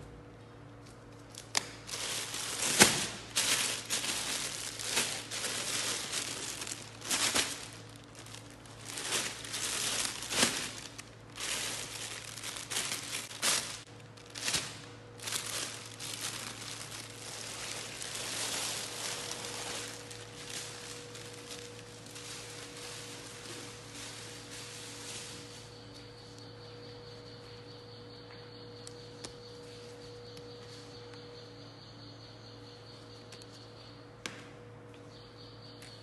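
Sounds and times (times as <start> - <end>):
plastic bag crinkling: 1.8 - 25.7.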